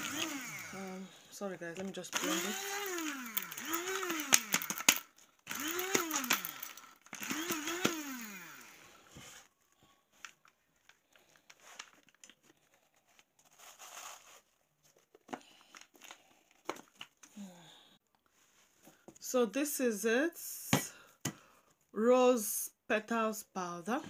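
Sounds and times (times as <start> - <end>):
blender grinding: 0.0 - 9.5.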